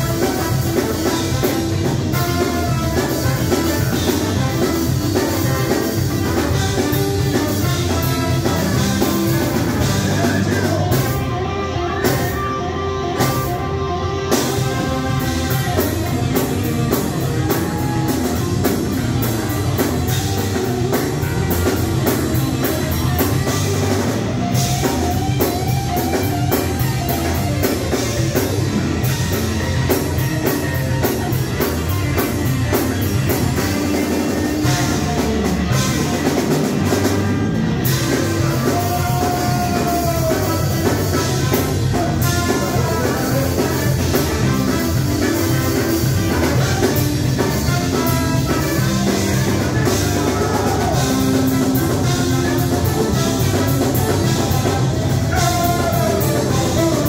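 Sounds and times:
cymbals keeping a beat: 0.0s - 11.3s, 14.2s - 57.0s
held horn notes: 0.0s - 57.0s
live band playing: 0.0s - 57.0s.

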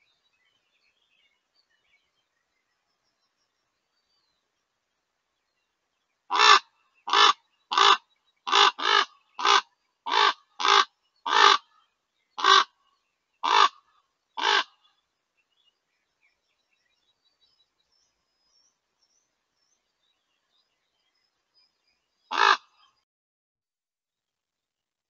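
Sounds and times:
raven calling: 6.3s - 11.8s, 12.4s - 12.8s, 13.4s - 14.8s, 22.3s - 22.9s.

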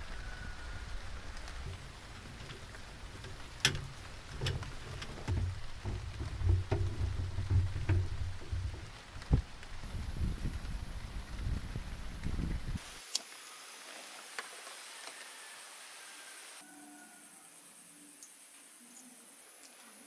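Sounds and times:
soft patter like rain: 0.0s - 20.0s
folding furniture clicks and knocks: 1.6s - 9.4s
low thumps on deck: 1.7s - 9.5s.

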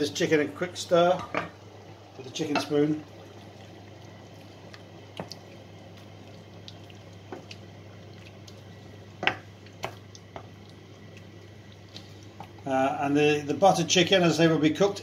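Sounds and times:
low steady hum: 0.0s - 15.0s
spoon stirring thick sauce: 2.6s - 12.7s.

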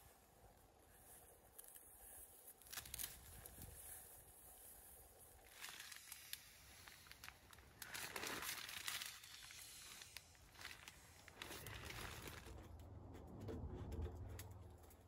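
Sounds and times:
tent fabric rustling: 0.9s - 12.5s.

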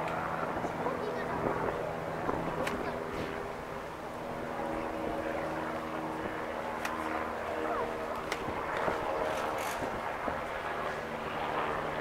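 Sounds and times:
steady low hum: 0.0s - 12.0s
crowd chattering: 4.4s - 9.7s.

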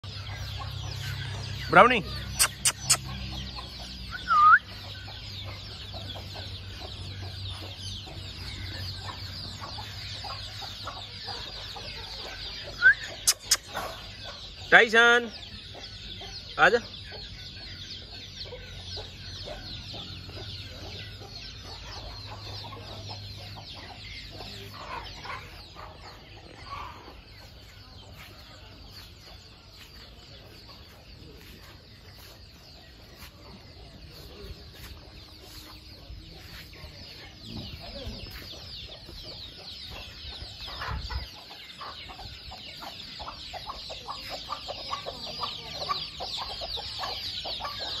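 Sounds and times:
chickens clucking: 0.0s - 48.0s
high-pitched chirps: 2.4s - 3.1s, 4.1s - 4.8s, 12.7s - 13.8s.

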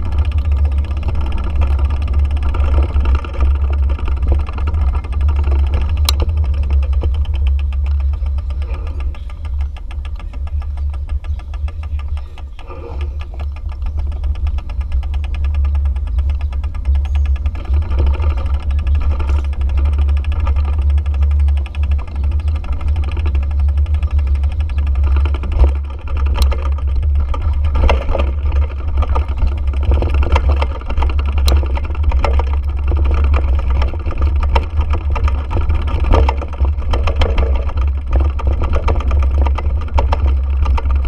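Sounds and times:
small motorbike engine running: 0.0s - 41.0s.

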